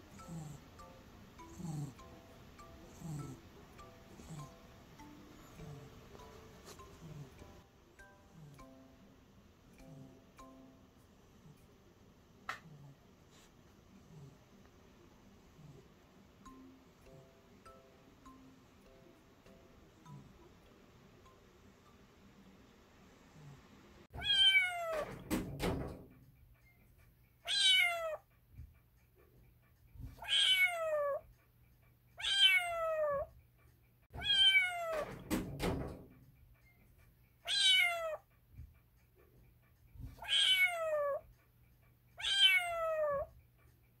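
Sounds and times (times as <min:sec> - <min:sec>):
kitten meowing: 0:24.2 - 0:25.0, 0:27.5 - 0:28.2, 0:30.2 - 0:31.2, 0:32.2 - 0:33.3, 0:34.2 - 0:35.0, 0:37.5 - 0:38.2, 0:40.2 - 0:41.2, 0:42.2 - 0:43.3.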